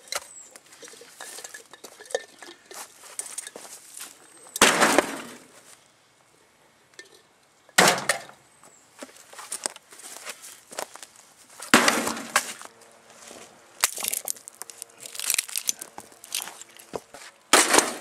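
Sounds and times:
metal and glass rattling: 0.8s - 3.6s.

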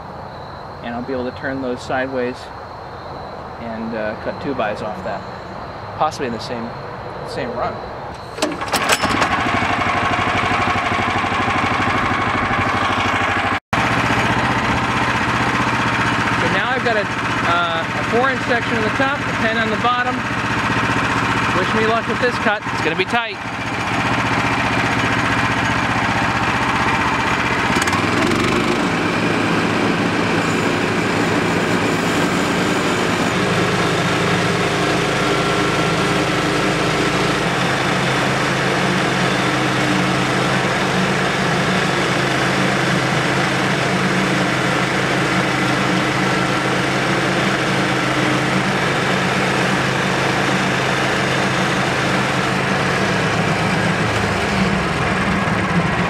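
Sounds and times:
engine running under load: 0.0s - 56.0s
band blade sawing log: 26.6s - 38.0s.

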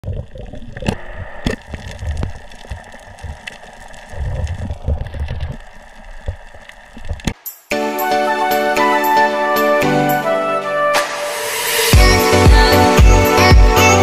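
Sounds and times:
muffled underwater rumbles: 0.0s - 7.3s.

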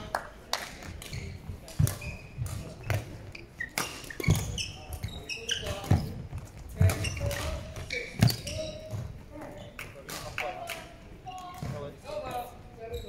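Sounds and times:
shoes squeaking: 1.0s - 9.8s, 11.5s - 13.0s
rackets striking shuttlecock: 6.8s - 8.5s.

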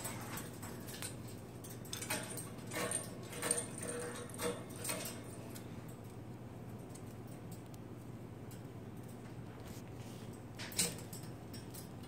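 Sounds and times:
plastic toys clicking and rattling: 0.0s - 5.4s.

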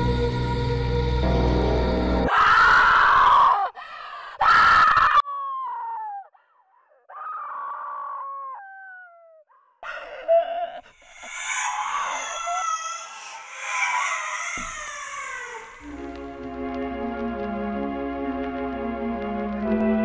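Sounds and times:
music: 0.0s - 2.4s, 15.8s - 20.0s
young woman screaming: 2.3s - 3.8s, 4.4s - 6.4s, 11.1s - 15.9s
woman wailing: 10.2s - 16.0s.

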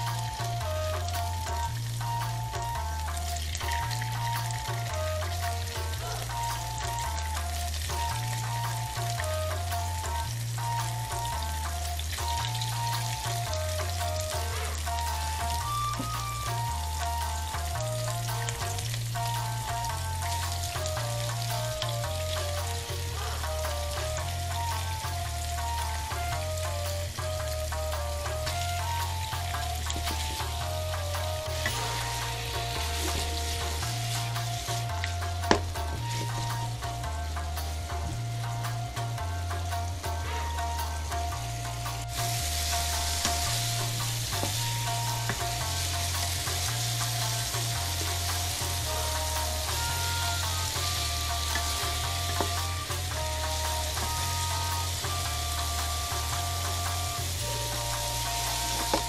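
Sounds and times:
background music melody: 0.0s - 59.0s
tofu sizzling in frying pan: 0.0s - 59.0s
wooden spatula stirring: 28.2s - 37.9s.

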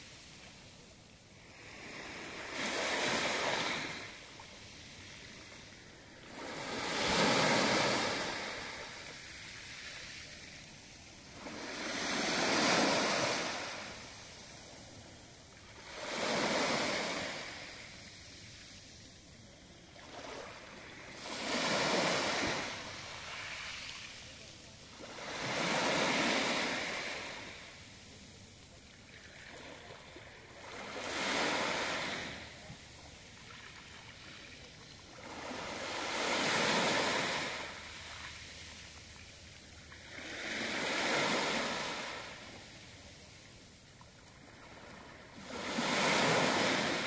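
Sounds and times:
waves breaking on pebble beach: 6.2s - 10.3s, 11.3s - 14.3s, 25.0s - 27.6s, 44.6s - 47.0s.

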